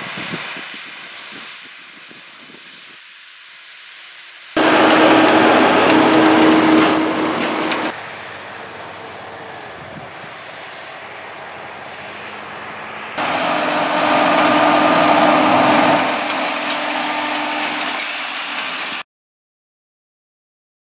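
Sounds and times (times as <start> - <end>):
tractor engine running: 4.6 - 9.5, 11.0 - 19.0
implement rushing through soil: 4.6 - 9.6, 10.3 - 19.0.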